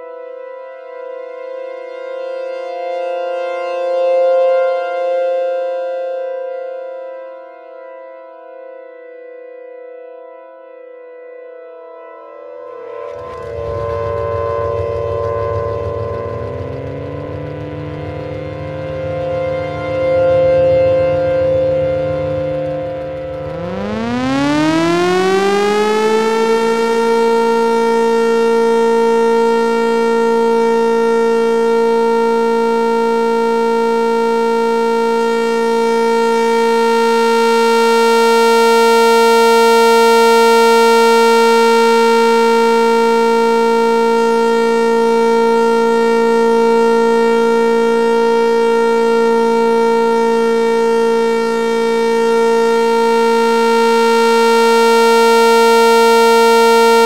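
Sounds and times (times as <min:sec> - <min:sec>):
civil defense sirens wailing: 0:00.0 - 0:57.0.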